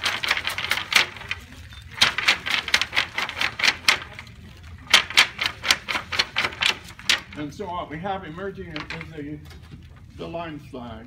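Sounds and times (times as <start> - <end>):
wooden flax brake clacking: 2.0 - 4.2, 4.9 - 7.6.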